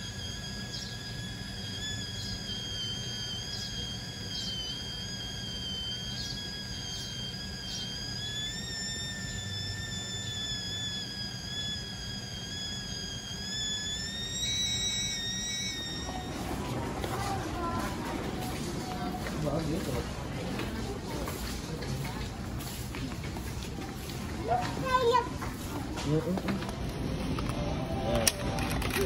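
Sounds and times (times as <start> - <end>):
high whistling tone: 0.0 - 20.0
low hum: 0.0 - 21.2.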